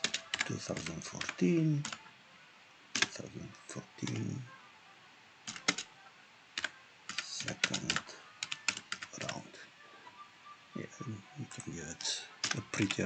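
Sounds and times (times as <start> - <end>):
computer keyboard typing: 0.0 - 2.0, 2.9 - 3.2, 4.0 - 4.3, 5.4 - 5.9, 6.6 - 9.5, 12.4 - 13.0.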